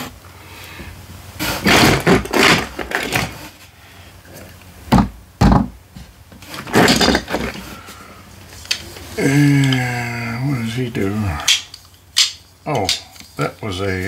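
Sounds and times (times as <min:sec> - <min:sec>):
plastic toys rustling and clattering: 0:01.4 - 0:04.6, 0:06.3 - 0:09.9, 0:11.2 - 0:14.0.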